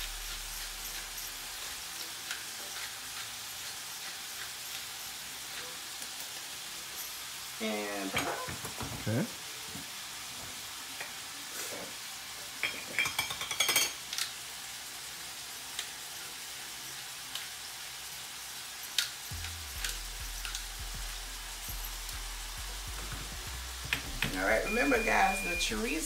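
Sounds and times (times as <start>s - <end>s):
meat sizzling in a skillet: 0.0s - 26.0s
low steady hum: 19.3s - 26.0s.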